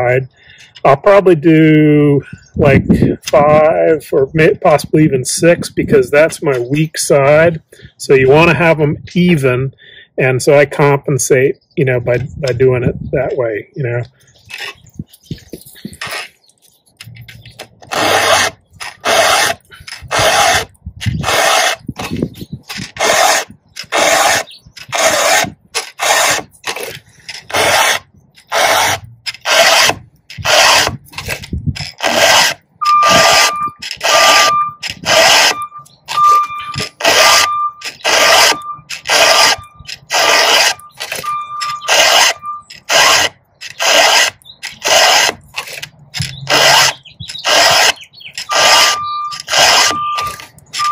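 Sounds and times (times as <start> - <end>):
file rasping on chainsaw chain: 14.5 - 14.8, 15.6 - 16.3, 17.0 - 50.9
thin high squeal: 32.8 - 44.0, 46.3 - 50.9.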